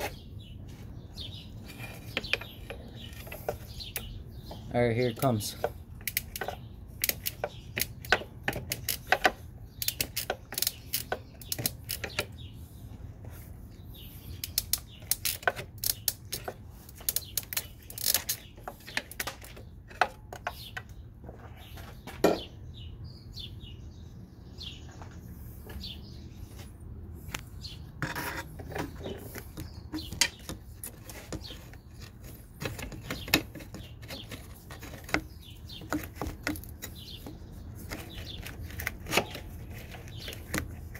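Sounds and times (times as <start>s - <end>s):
hand tools clicking on metal: 5.2s - 12.3s.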